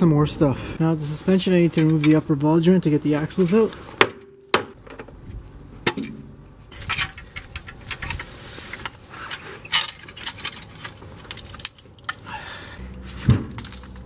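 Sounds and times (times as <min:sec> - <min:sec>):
metal tools clinking and rattling: 0:06.7 - 0:08.3, 0:09.3 - 0:14.0.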